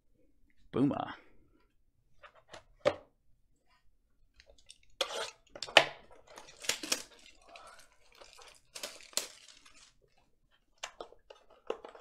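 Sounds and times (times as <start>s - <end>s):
knocks and rustling of card pack: 5.6s - 10.2s.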